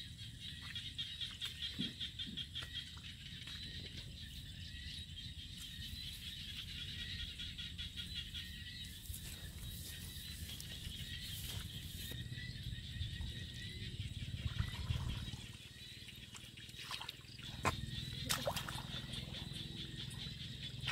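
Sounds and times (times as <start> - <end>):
feet splashing through mud: 16.3 - 19.2
trilling animal chorus: 17.3 - 20.9.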